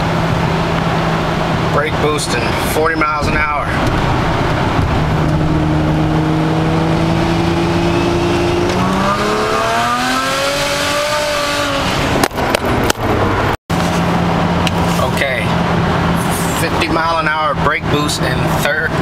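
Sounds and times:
car engine droning: 0.0s - 19.0s.

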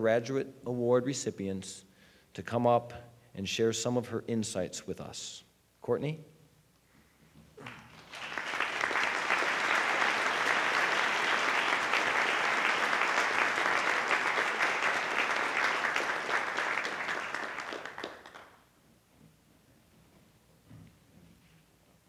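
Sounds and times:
audience applauding: 7.6s - 18.6s.

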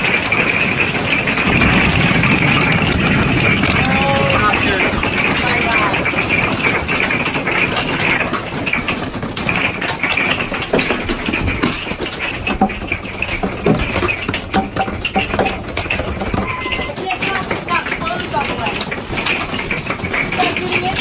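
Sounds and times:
hail clattering on roof: 0.0s - 21.0s
steady rushing noise: 0.7s - 7.3s.

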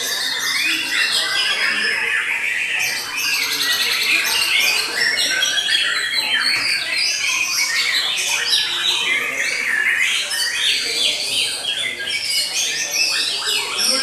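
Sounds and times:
birds singing whistled phrases: 0.0s - 14.0s.

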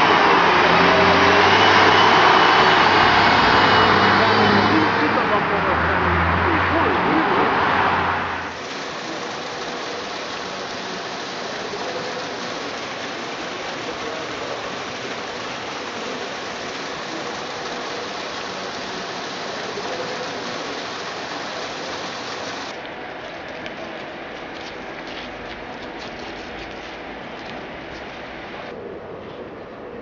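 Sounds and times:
rushing noise in tunnel: 0.0s - 23.3s
footsteps on gravel: 23.2s - 28.4s.

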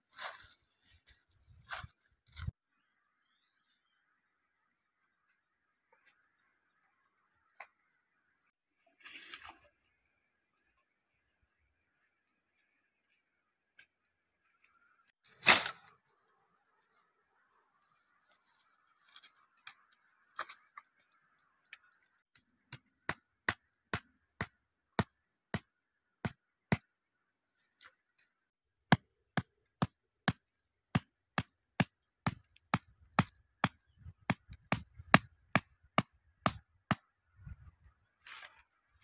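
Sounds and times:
blade chopping dry wood: 22.3s - 26.9s, 28.8s - 37.1s.

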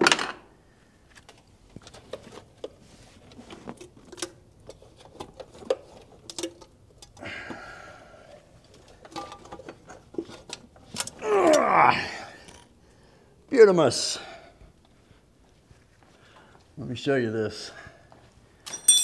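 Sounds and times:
metal parts clicking and knocking: 18.7s - 19.0s.

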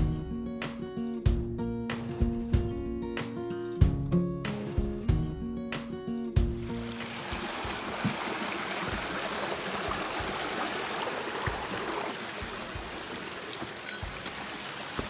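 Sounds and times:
stream water rushing: 6.6s - 15.0s.

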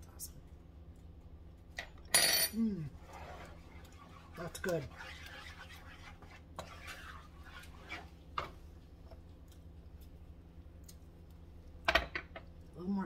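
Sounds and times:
low steady hum: 0.0s - 13.0s
wooden spoon scraping a pan: 2.9s - 8.6s.

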